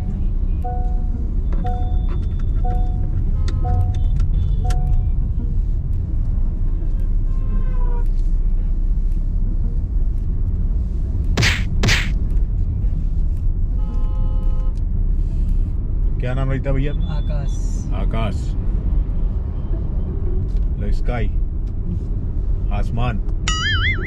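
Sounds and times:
car cabin road and engine rumble: 0.0s - 24.0s
two-note chime: 23.5s - 24.0s.

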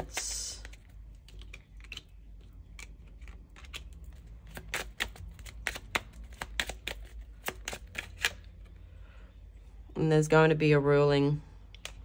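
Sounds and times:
cards shuffling and flicking: 0.0s - 8.6s.

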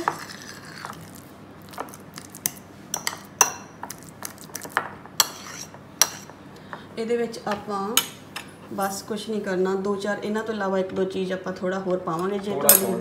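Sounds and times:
fork clinking and scraping bowl: 0.0s - 6.3s
fork mashing avocado: 0.0s - 6.4s.

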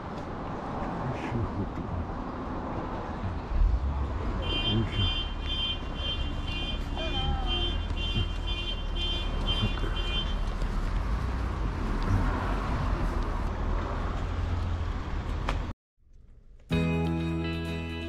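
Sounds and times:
music: 16.7s - 18.0s.

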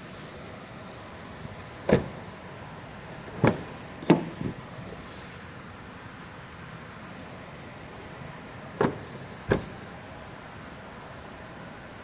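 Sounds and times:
car doors thudding shut: 1.8s - 2.2s, 3.3s - 4.6s, 8.8s - 9.8s.

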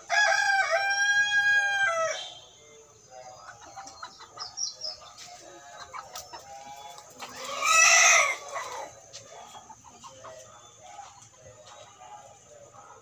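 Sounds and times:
loud chicken call: 0.0s - 2.5s, 7.2s - 8.9s
chickens clucking softly: 1.3s - 13.0s.

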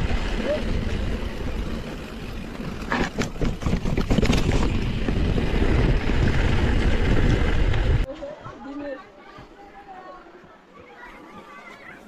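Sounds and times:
bike rattling and knocking: 0.0s - 8.1s
wind buffeting microphone: 3.3s - 8.1s.

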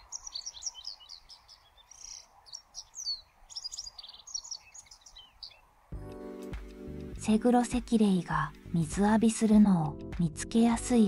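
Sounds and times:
bird singing high chirps: 0.0s - 5.7s.

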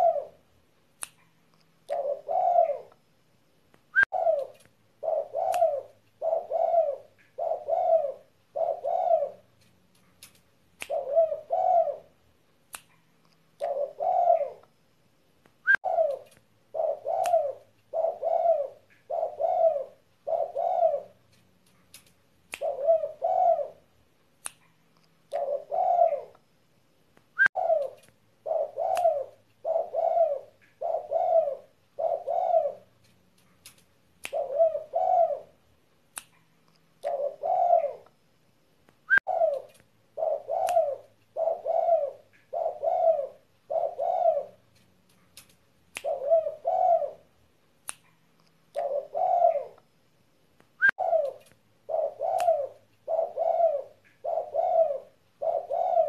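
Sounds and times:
dove cooing: 0.0s - 0.4s, 1.9s - 3.0s, 4.0s - 9.5s, 10.9s - 12.2s, 13.6s - 14.6s, 15.7s - 21.2s, 22.6s - 23.9s, 25.3s - 26.4s, 27.5s - 33.0s, 34.3s - 35.6s, 37.0s - 38.1s, 39.2s - 44.6s, 46.0s - 47.3s, 48.7s - 49.8s, 50.9s - 56.0s.

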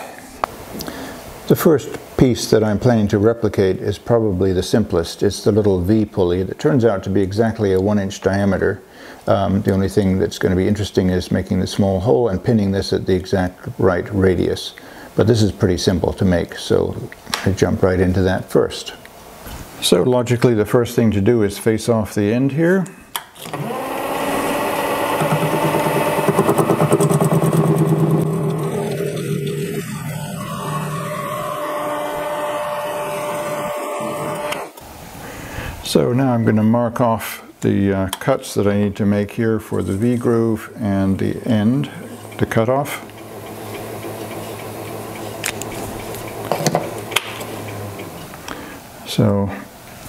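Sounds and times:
lathe motor and gear whine: 23.4s - 34.8s, 41.2s - 48.3s.

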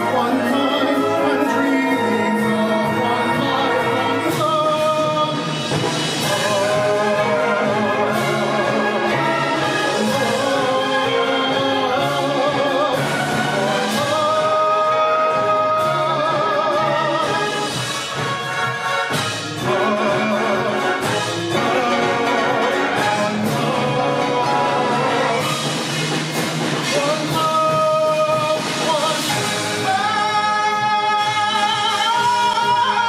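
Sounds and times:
concert wind band playing: 0.0s - 33.0s
tenor voice singing with vibrato: 6.2s - 17.9s, 19.4s - 25.8s, 26.8s - 33.0s.

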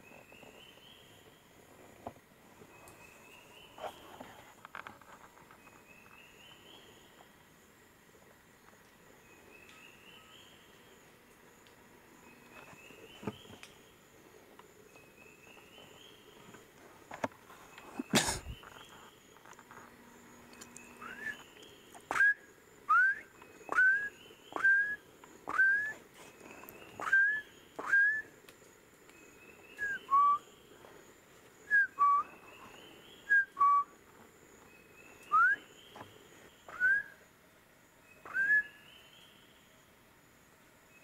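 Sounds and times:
short rising whistles: 21.0s - 21.5s, 22.1s - 26.0s, 27.0s - 28.3s, 35.3s - 35.6s, 36.7s - 37.2s, 38.3s - 38.8s.

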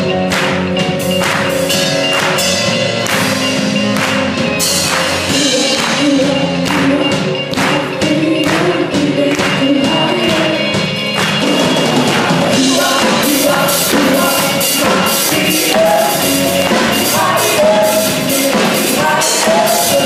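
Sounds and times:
drum kit beat: 0.0s - 20.0s
worship band playing: 0.0s - 20.0s
backing singers: 2.1s - 20.0s
female lead singer: 5.3s - 11.2s, 12.0s - 20.0s.

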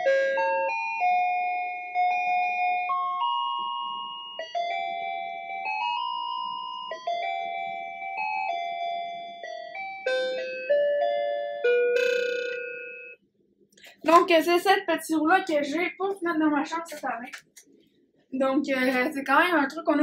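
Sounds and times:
electronic chime melody: 0.0s - 13.2s.

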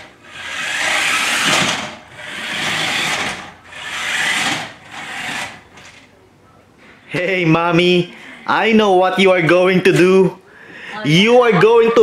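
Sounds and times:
toy car electric motor whirring: 0.0s - 5.6s.

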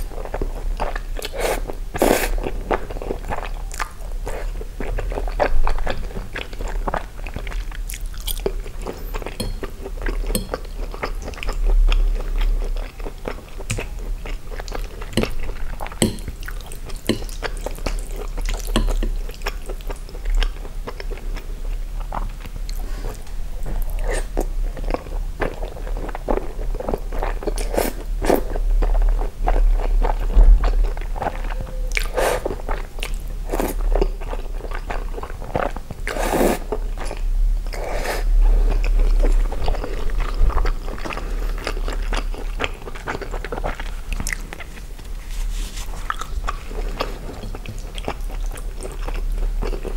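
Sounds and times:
chewing and wet mouth sounds: 0.0s - 49.9s
spaghetti sucked into mouth: 36.1s - 36.7s.

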